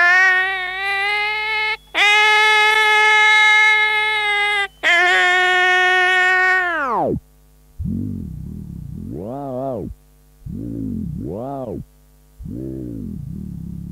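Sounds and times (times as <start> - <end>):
mains hum: 0.0 - 13.9
synthesizer tones sliding in pitch: 7.8 - 13.9.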